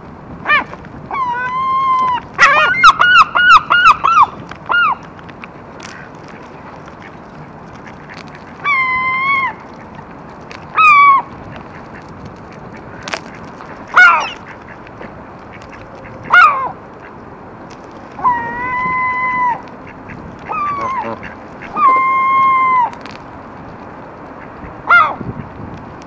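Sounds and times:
gulls and geese calling: 0.4s - 5.1s, 13.6s - 14.8s, 18.2s - 23.0s, 24.4s - 25.5s.

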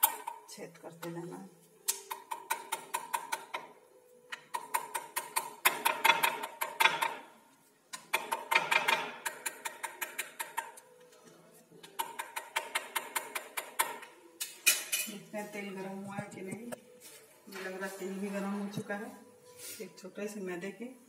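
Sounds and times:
fork tines tapping on stone: 11.8s - 15.1s.

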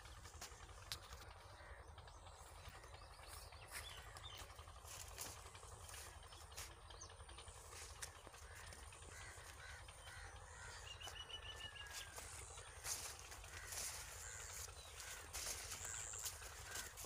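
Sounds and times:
birds calling: 0.0s - 17.0s
high ticking bird notes: 0.0s - 17.0s
rustling and footsteps: 3.3s - 6.9s, 7.5s - 17.0s.

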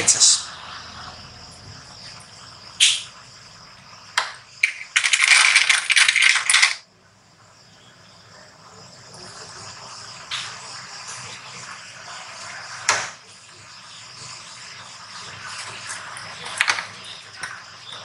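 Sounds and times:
plastic clips clicking and rattling: 4.6s - 6.8s.

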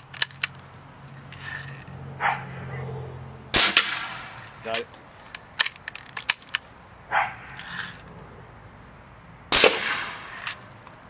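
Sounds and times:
air cannon blast: 3.5s - 4.4s, 9.5s - 10.3s.

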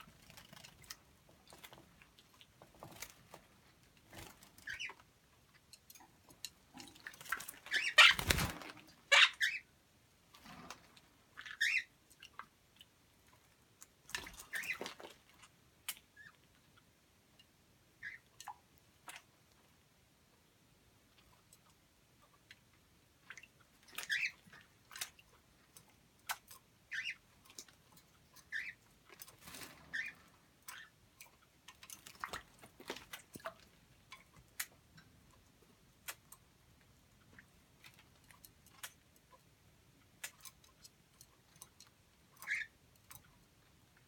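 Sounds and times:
parrot chirps: 9.1s - 9.7s, 11.4s - 11.9s, 24.0s - 24.4s, 26.9s - 27.2s, 28.5s - 28.8s.

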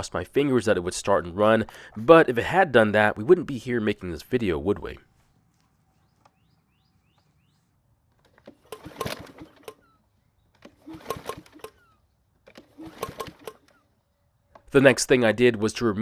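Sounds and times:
faint bird chirps: 5.2s - 7.8s
recoil starter pulls: 8.1s - 9.9s, 10.5s - 13.9s
mower engine cranking: 8.1s - 14.0s.

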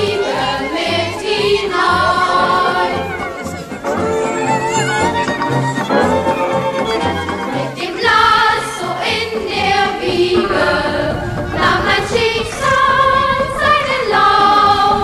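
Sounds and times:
choir singing held notes: 0.0s - 15.0s.

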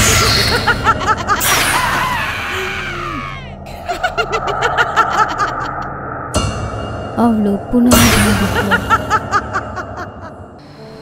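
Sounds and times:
cartoon witch cackling laugh: 0.1s - 5.9s, 8.5s - 10.4s.

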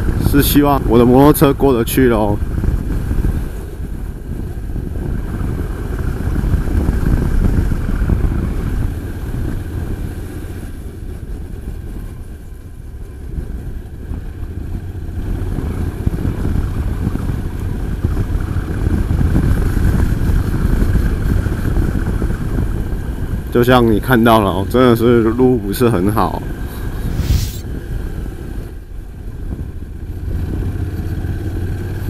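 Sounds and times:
wind rushing on microphone: 0.0s - 32.0s
motorcycle engine running: 2.4s - 23.5s, 28.1s - 32.0s.

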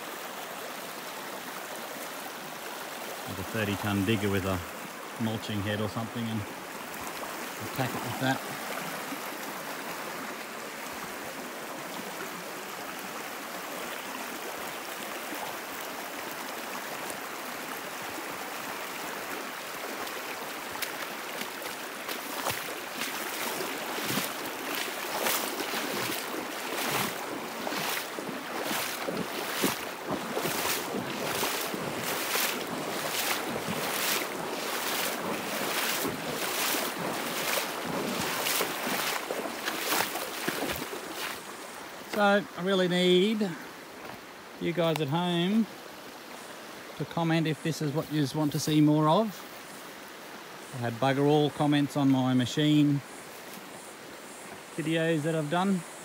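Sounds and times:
creek running: 0.0s - 56.0s
footsteps walking: 20.8s - 41.4s.

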